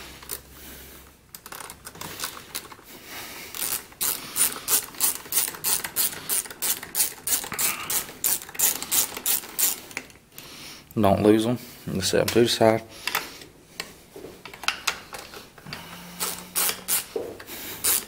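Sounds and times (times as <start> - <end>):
socket ratchet clicking: 3.5 - 10.1, 16.2 - 17.1, 17.8 - 18.0.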